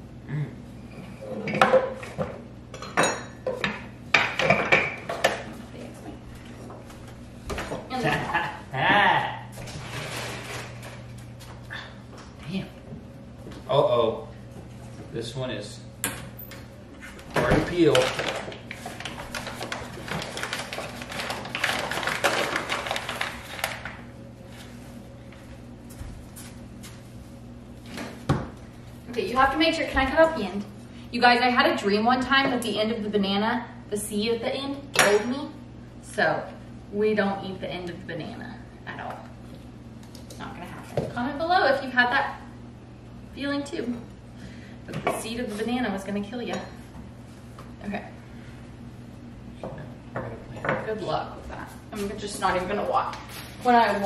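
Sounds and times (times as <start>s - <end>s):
plastic packaging crinkling: 17.7s - 24.1s.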